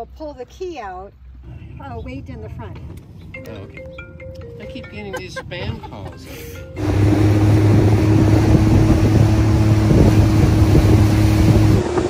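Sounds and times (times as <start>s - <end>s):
motorboat engine humming: 0.0s - 12.0s
wind on microphone: 6.8s - 12.0s.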